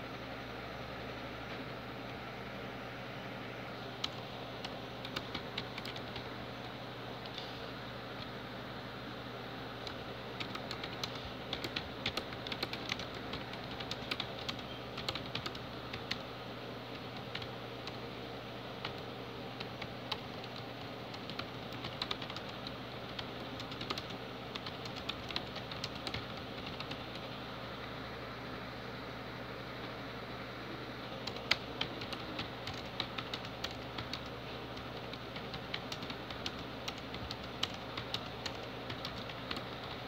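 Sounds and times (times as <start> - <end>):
steady low hum: 0.0 - 40.0
fast typing on keyboard: 4.0 - 6.3, 9.8 - 16.3, 16.9 - 18.1, 18.8 - 27.3, 31.2 - 40.0.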